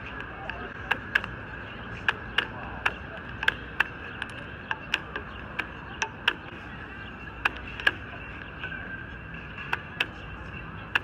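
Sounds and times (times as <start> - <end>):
chess clock buttons clicking: 2.0 - 6.5.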